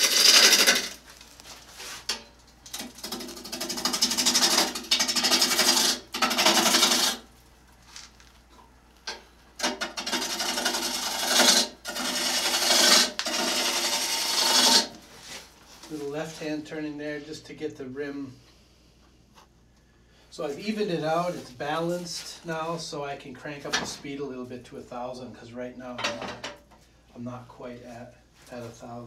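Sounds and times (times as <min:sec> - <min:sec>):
bowl gouge cutting wood on lathe: 0:00.0 - 0:01.0, 0:02.8 - 0:07.2, 0:09.6 - 0:15.0.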